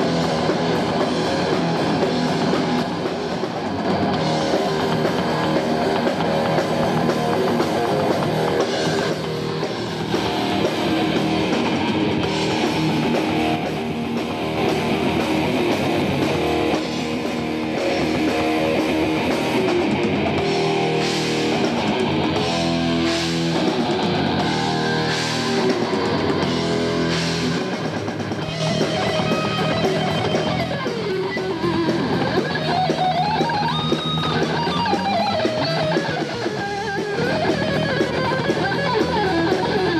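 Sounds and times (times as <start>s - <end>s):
distorted electric guitar: 0.0s - 39.9s
drum kit: 0.0s - 39.9s.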